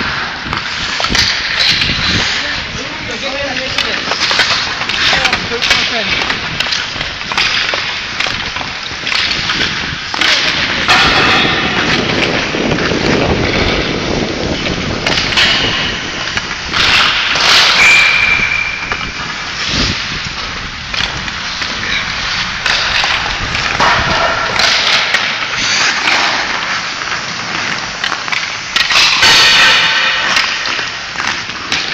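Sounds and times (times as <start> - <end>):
skate blades scraping ice: 0.0 - 31.9
sticks clacking pucks and boards: 0.0 - 31.9.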